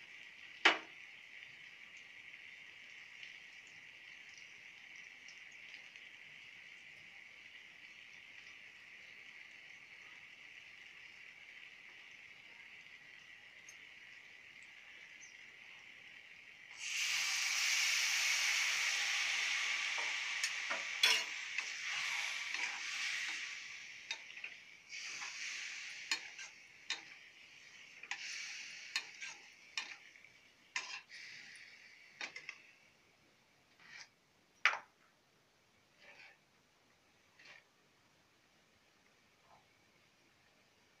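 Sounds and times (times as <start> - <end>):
food sizzling in a pan: 0.0 - 33.0, 33.8 - 34.1, 36.0 - 36.4
metal spatula scraping a pan: 19.5 - 27.2, 28.0 - 30.1, 30.8 - 31.6, 33.7 - 34.2, 36.0 - 36.4, 37.4 - 37.7.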